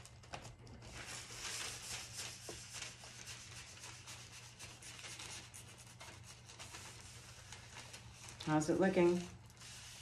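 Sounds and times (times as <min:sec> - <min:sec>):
plastic bag rustling on wet paper: 0:00.0 - 0:10.0.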